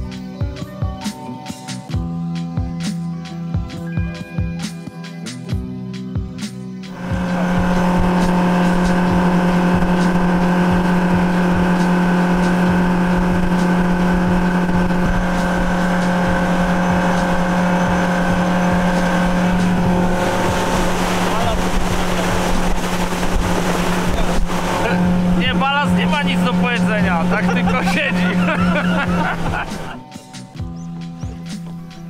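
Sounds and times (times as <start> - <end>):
music: 0.0 - 32.0
motorboat engine droning: 6.9 - 32.0.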